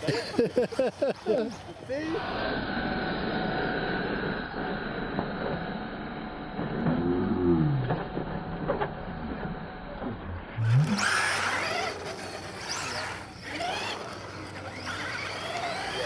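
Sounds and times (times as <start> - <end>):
electric toy car motors whining: 0.0 - 16.0.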